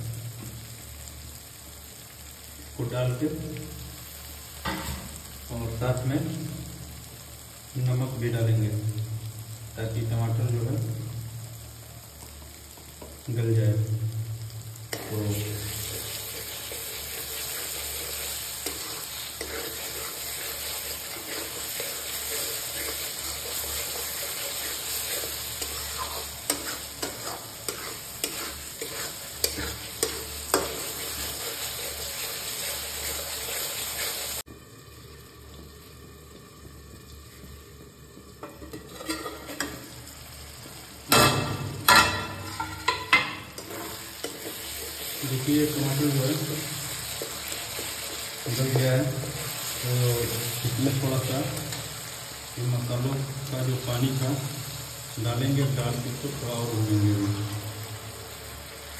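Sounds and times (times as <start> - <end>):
tomatoes sizzling in oil: 0.0 - 58.9
spatula scraping metal pan: 15.8 - 34.2, 41.9 - 45.2.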